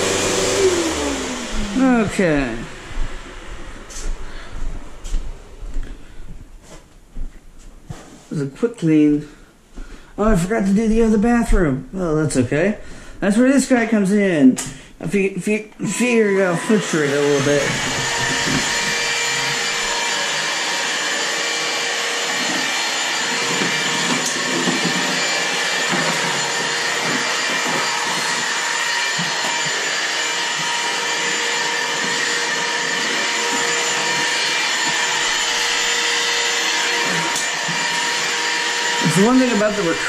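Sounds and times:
vacuum cleaner running: 0:00.0 - 0:06.1, 0:15.4 - 0:40.0.

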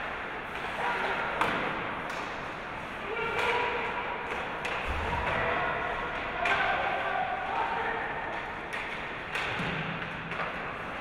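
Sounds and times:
hockey sticks and puck knocking: 0:00.0 - 0:02.6, 0:03.3 - 0:05.4, 0:08.3 - 0:11.0.

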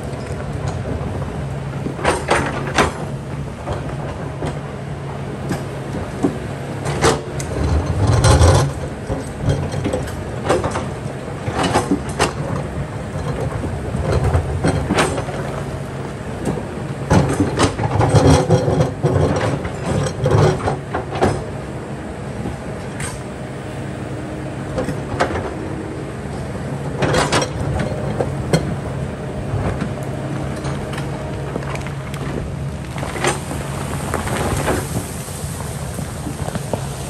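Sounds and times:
diesel engine running: 0:00.0 - 0:37.0
excavator bucket scraping stone: 0:05.4 - 0:21.5, 0:26.3 - 0:37.0.

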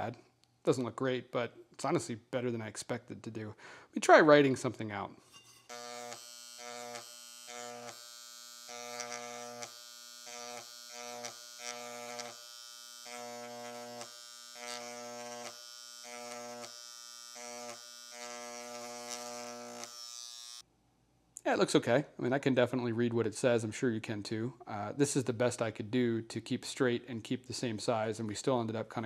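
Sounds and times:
electric engraver buzzing on metal: 0:05.6 - 0:20.6.

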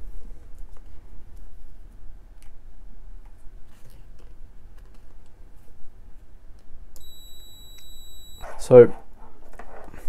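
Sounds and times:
multimeter continuity beep: 0:07.0 - 0:08.5.

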